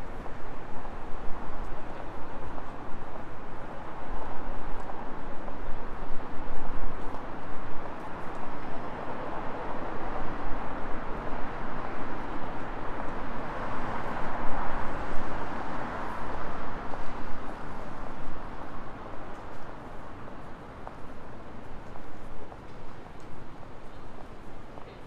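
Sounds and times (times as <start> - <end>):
passing city traffic: 0.0 - 25.0.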